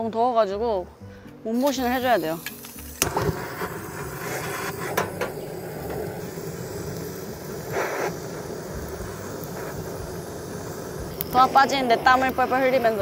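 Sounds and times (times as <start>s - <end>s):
gas torch flame hissing: 1.5s - 13.0s
torch igniter clicks: 1.6s - 13.0s.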